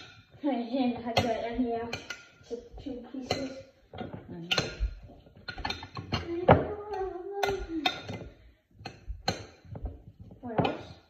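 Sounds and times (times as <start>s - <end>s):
kitchen utensils clinking: 1.0s - 9.8s.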